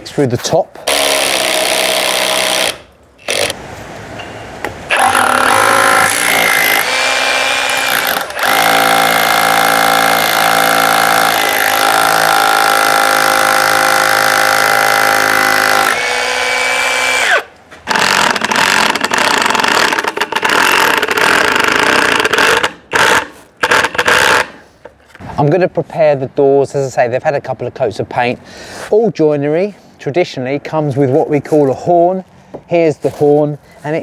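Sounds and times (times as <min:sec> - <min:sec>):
cordless drill whining: 0:00.9 - 0:03.6, 0:04.9 - 0:24.4
impact driver rattling: 0:05.0 - 0:16.0, 0:17.9 - 0:24.6.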